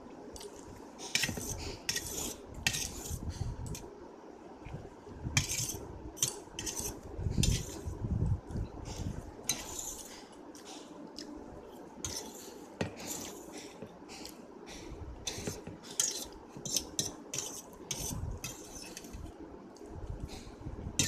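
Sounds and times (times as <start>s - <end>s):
metal fork scraping a metal plate: 1.2s - 3.2s, 5.4s - 7.8s, 15.3s - 19.2s.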